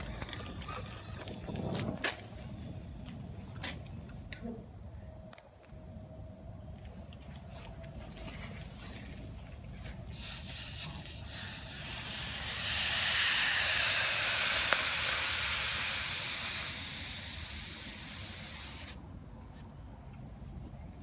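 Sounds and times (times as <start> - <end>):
steam hissing: 10.1 - 19.0.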